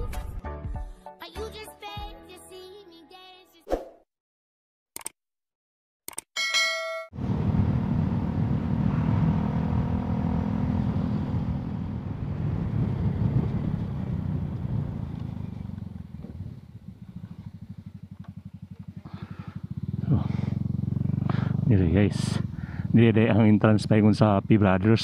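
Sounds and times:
motorcycle engine running: 0:07.2 - 0:25.0
road and wind noise: 0:07.2 - 0:25.0.

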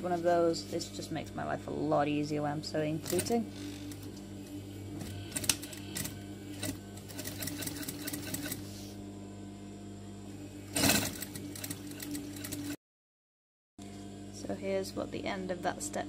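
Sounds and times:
sewing machine stitching: 0:05.3 - 0:08.6, 0:10.7 - 0:12.8.

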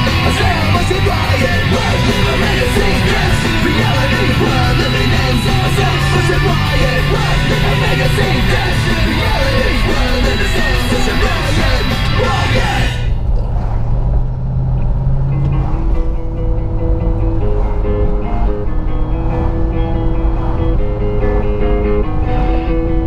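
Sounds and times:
rock music with guitar: 0:00.0 - 0:13.2, 0:15.2 - 0:23.0.

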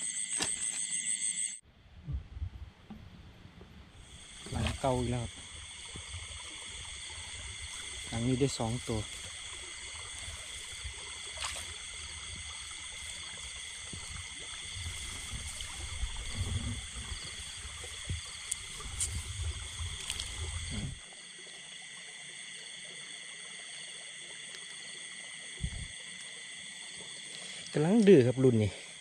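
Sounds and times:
high-pitched insect chorus: 0:00.0 - 0:01.6, 0:04.0 - 0:29.0
low rumbling: 0:01.6 - 0:11.2, 0:11.8 - 0:21.0, 0:25.6 - 0:25.9
water handling noise: 0:04.1 - 0:21.0.

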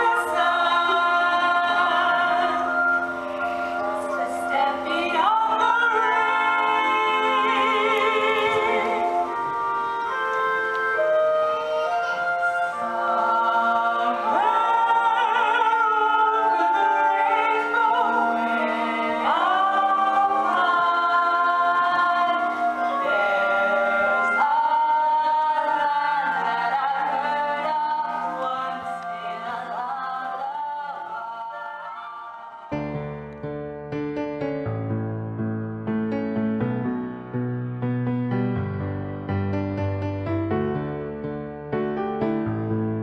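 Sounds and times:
voices singing long notes: 0:00.0 - 0:32.9.

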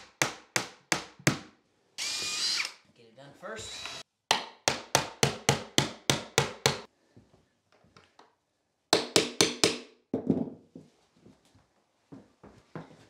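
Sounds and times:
hammer striking nails: 0:00.0 - 0:01.6, 0:03.8 - 0:06.9, 0:08.9 - 0:10.4.

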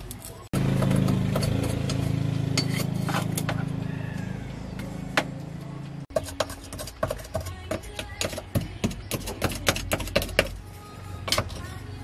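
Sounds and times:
metal scraper clinking: 0:00.9 - 0:03.6.

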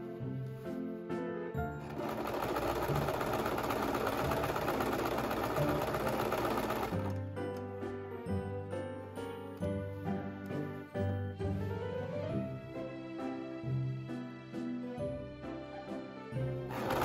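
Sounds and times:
light background music: 0:00.0 - 0:17.0
sewing machine stitching: 0:01.8 - 0:07.3, 0:16.6 - 0:17.0.

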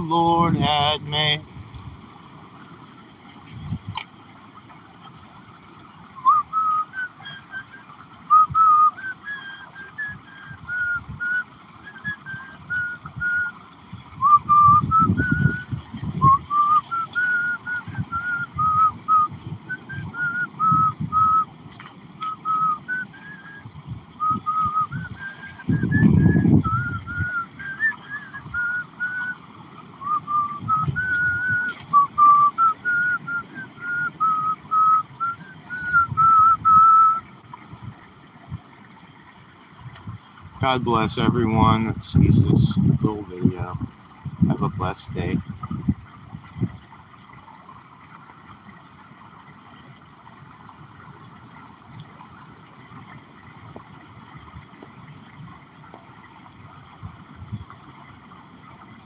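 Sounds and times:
man whistling a tune: 0:06.2 - 0:13.6, 0:14.2 - 0:21.5, 0:22.2 - 0:29.4, 0:30.0 - 0:37.3.

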